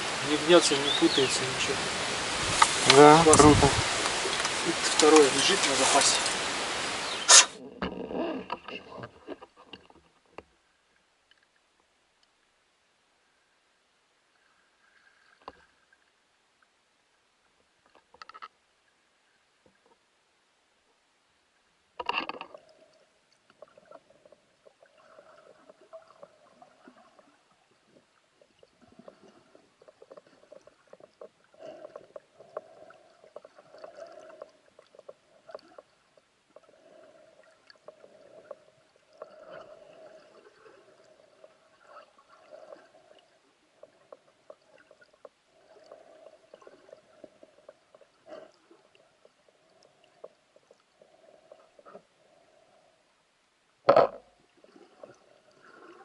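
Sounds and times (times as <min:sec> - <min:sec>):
underwater water gurgling: 0:22.0 - 0:53.2, 0:53.8 - 0:56.0.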